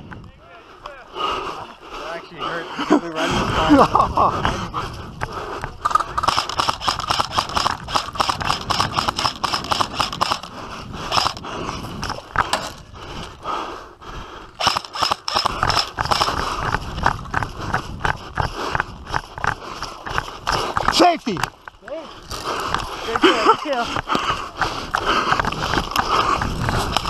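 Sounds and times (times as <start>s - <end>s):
gear rattling: 5.8s - 10.5s, 11.1s - 11.4s.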